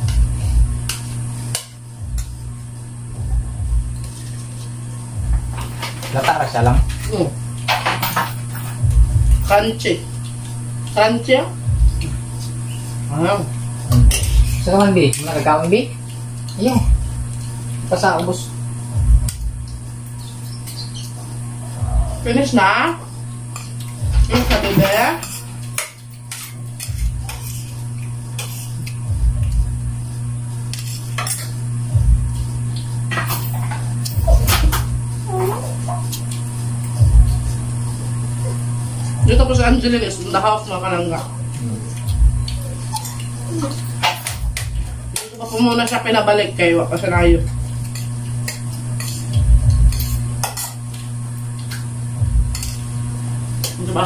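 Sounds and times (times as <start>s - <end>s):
dull low thumps: 0.0s - 0.9s, 2.0s - 4.0s, 5.1s - 5.6s, 6.6s - 7.2s, 8.8s - 9.7s, 11.6s - 12.4s, 13.9s - 14.8s, 16.8s - 17.3s, 18.7s - 19.9s, 21.8s - 22.4s, 24.0s - 24.7s, 29.0s - 30.1s, 31.7s - 32.8s, 34.2s - 35.4s, 37.0s - 40.0s, 41.5s - 42.8s, 47.1s - 47.7s, 49.4s - 50.4s, 52.1s - 52.6s
steady low hum: 0.0s - 54.0s
spoons clicking on plates: 47.8s - 51.0s.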